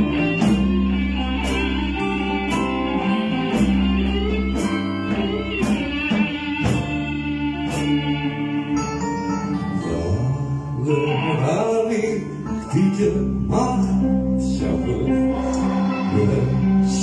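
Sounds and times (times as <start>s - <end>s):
live rock band playing: 0.0s - 17.0s
man singing: 9.1s - 17.0s.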